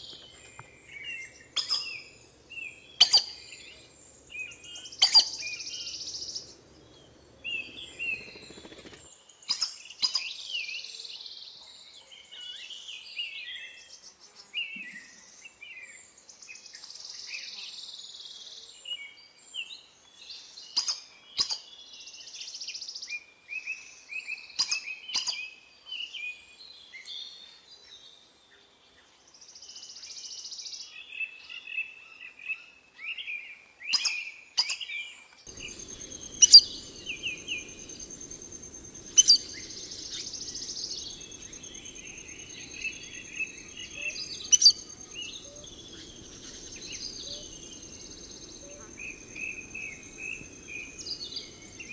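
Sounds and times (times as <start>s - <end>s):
birds chirping and calling: 0.0s - 10.3s, 33.9s - 51.9s
high insect buzz: 35.5s - 51.9s.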